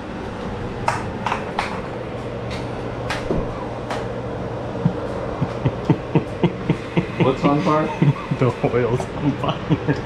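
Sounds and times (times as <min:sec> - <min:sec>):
steady low hum: 0:00.0 - 0:10.0.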